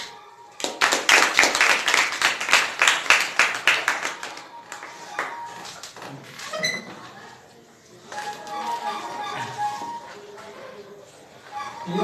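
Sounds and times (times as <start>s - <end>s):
small group clapping: 0.0s - 6.0s.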